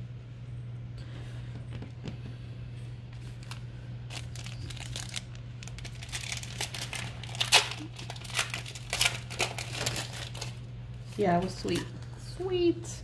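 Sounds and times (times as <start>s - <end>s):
steady low hum: 0.0s - 13.0s
foil wrapper crinkling and tearing: 3.2s - 11.3s.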